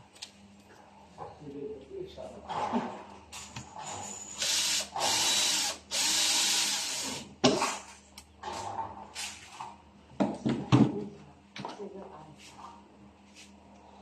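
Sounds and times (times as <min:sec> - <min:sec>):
cordless drill driving screws: 0:04.3 - 0:07.2.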